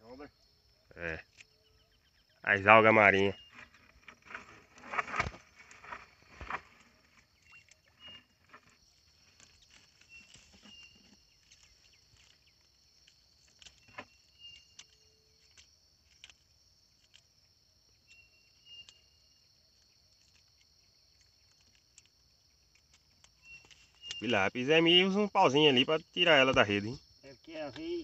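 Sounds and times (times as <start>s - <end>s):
insect chirring: 0.0s - 28.0s
fishing net clicks and rustles: 3.5s - 17.3s, 19.8s - 24.2s.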